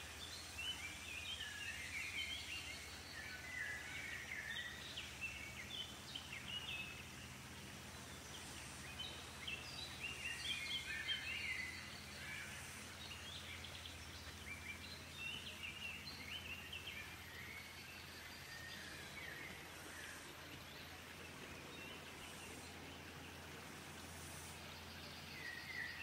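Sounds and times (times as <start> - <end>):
birds chirping: 0.0 - 26.0.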